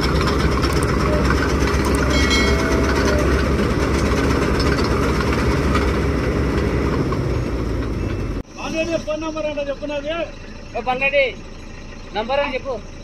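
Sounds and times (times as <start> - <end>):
mechanical clatter: 0.0 - 8.2
combine harvester engine rumbling: 0.0 - 13.0.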